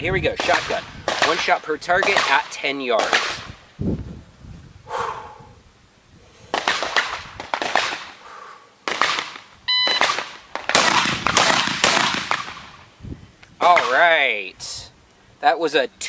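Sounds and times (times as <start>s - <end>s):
shotgun blasts with echo: 0.2s - 3.6s, 6.5s - 8.2s, 10.0s - 12.8s
gunshots: 0.4s - 3.6s, 6.5s - 8.2s, 8.9s - 12.8s
shot timer beep: 9.7s - 10.1s.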